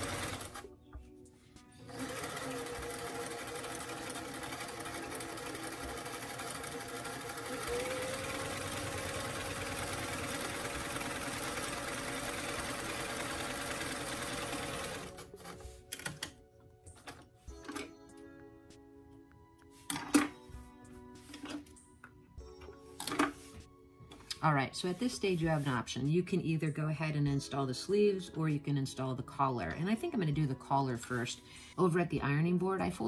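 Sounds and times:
sewing machine running: 0.0 - 0.6, 1.8 - 15.6.

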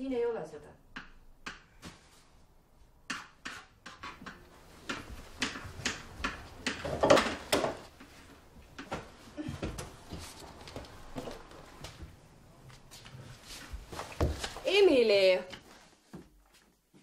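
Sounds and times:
knocks and clatter of rummaging: 5.4 - 8.0.

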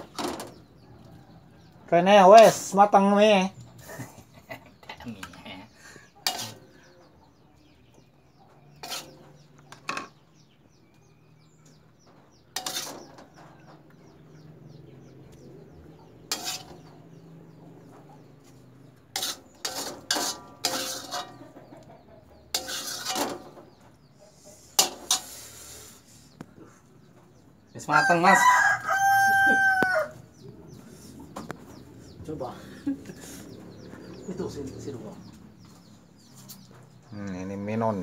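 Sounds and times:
metal spatula scraping a wok: 6.2 - 6.8, 8.7 - 10.2, 12.5 - 13.3, 16.2 - 16.9, 19.0 - 21.6, 22.4 - 26.1.

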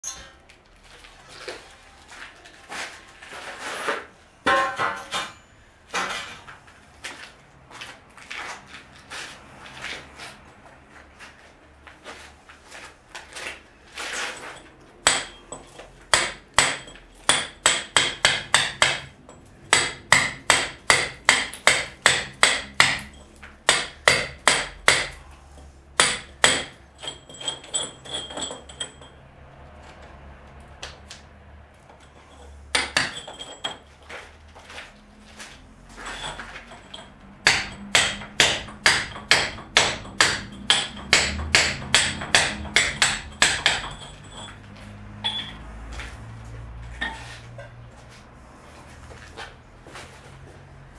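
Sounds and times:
hammer chipping at brickwork: 14.2 - 29.2, 32.0 - 33.9, 35.9 - 44.6.

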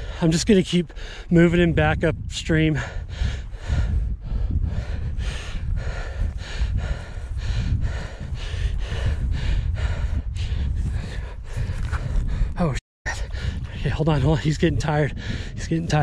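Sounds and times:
man breathing hard: 0.0 - 0.3, 0.9 - 1.3, 2.7 - 13.8, 15.1 - 15.6.

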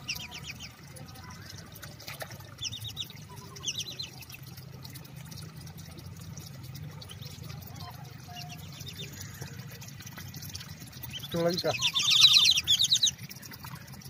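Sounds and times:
water trickling: 0.0 - 14.0
ducks whistling calls: 11.2 - 13.1.

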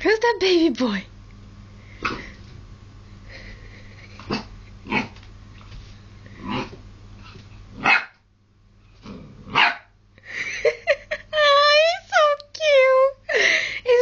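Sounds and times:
puppy barking: 7.8 - 8.2, 9.5 - 10.0.

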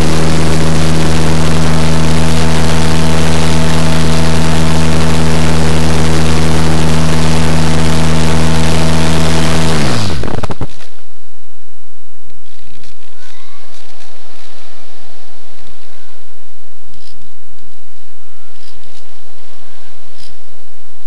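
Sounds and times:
electric motor and propeller whine: 0.0 - 11.0.

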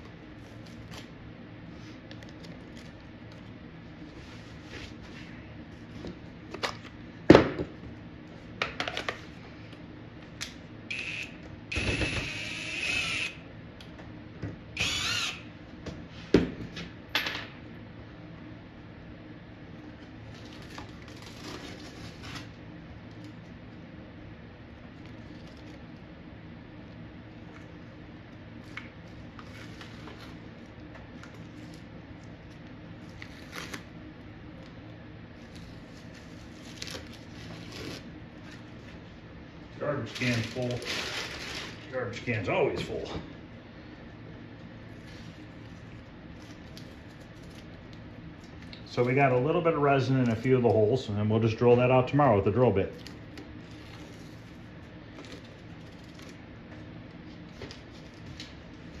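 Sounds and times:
steady low hum: 0.0 - 59.0
cordless drill running: 10.9 - 13.4, 14.8 - 15.4
tape and plastic sheet peeling: 20.3 - 22.6, 33.0 - 34.0, 35.4 - 38.7, 40.0 - 41.9.

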